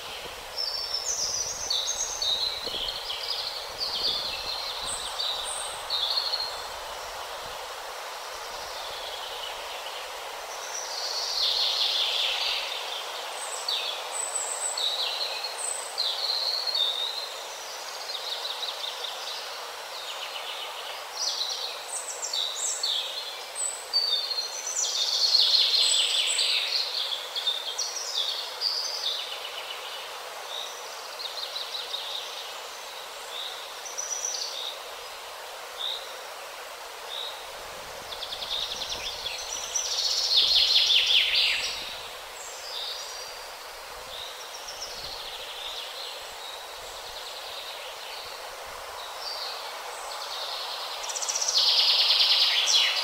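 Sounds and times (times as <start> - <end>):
small birds chirping: 0.0 - 7.5, 37.0 - 53.0
steady background hiss: 0.0 - 53.0.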